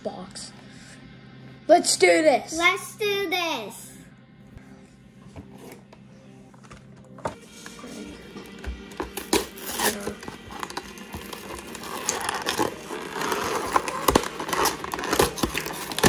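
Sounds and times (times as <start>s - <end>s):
plastic wrapping tearing and crinkling: 8.8s - 16.0s.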